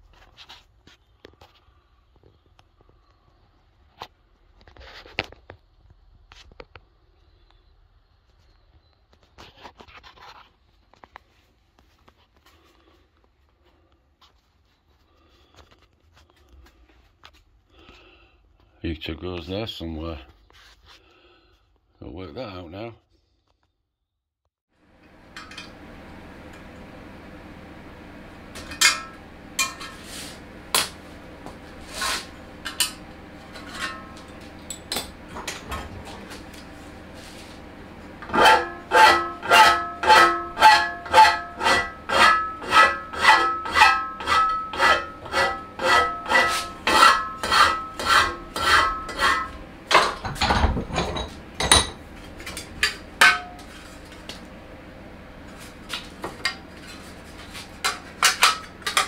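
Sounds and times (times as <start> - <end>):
hammer striking metal: 28.6 - 30.0, 52.6 - 53.7.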